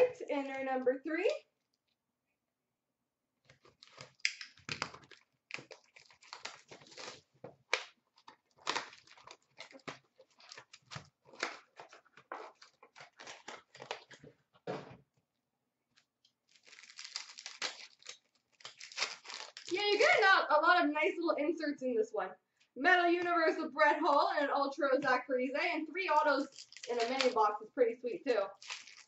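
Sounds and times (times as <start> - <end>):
foil packs crinkling: 3.5 - 14.3, 16.4 - 20.2, 26.4 - 27.4, 28.5 - 29.0.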